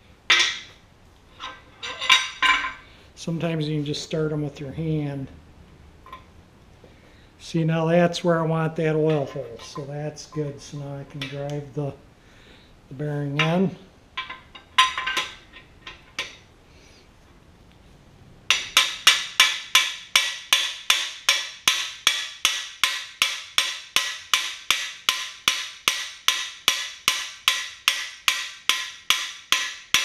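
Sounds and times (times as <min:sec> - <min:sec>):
hammer striking metal tool: 0:09.0 - 0:11.6, 0:18.5 - 0:30.0.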